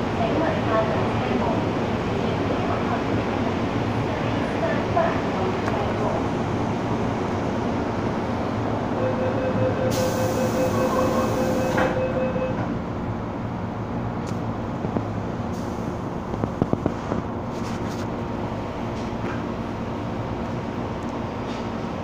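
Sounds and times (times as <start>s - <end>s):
steady high tone: 9.0s - 12.6s.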